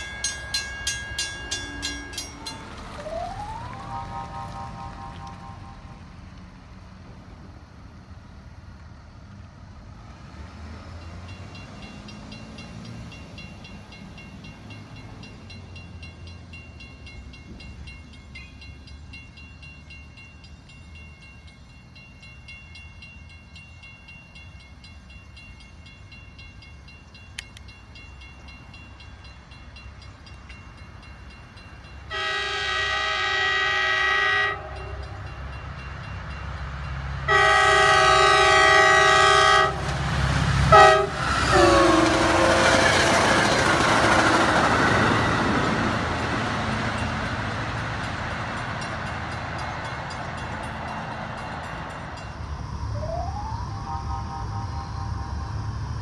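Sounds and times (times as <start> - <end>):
train rumble: 0.0 - 56.0
train air horn blasts: 1.6 - 6.3, 32.1 - 35.1, 37.3 - 39.9, 40.6 - 43.3.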